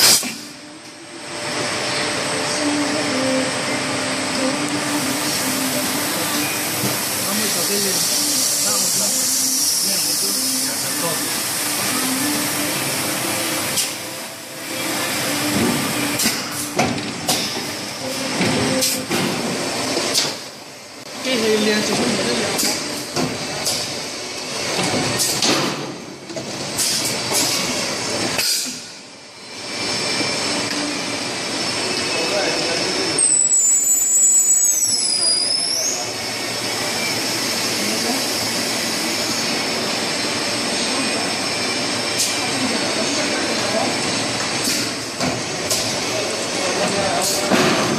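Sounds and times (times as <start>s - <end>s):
machine mechanical hiss: 4.7s - 20.5s, 26.7s - 32.4s, 33.2s - 47.9s
compressed air hissing: 5.0s - 14.0s, 26.8s - 27.8s
pneumatic clacks and knocks: 15.5s - 17.8s, 18.4s - 20.5s, 21.9s - 24.0s, 24.7s - 28.9s, 44.4s - 46.0s, 46.8s - 47.9s.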